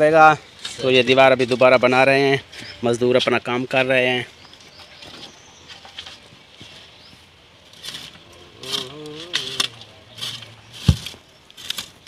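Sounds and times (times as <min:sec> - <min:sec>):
concrete blocks scraping and knocking: 0:07.7 - 0:12.0
shovel in sand: 0:07.8 - 0:12.0.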